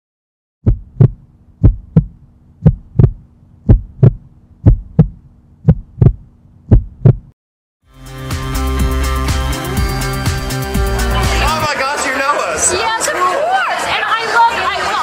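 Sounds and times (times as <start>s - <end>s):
heartbeat thumps: 0.6s - 7.4s.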